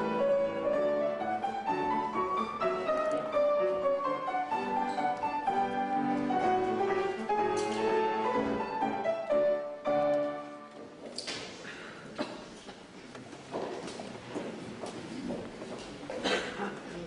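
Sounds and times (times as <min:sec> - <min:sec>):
classical piano music: 0:00.0 - 0:11.1.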